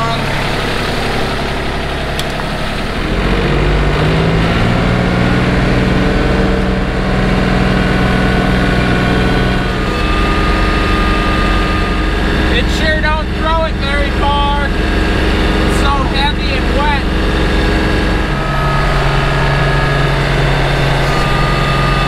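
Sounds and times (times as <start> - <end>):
tractor engine running: 0.0 - 22.0.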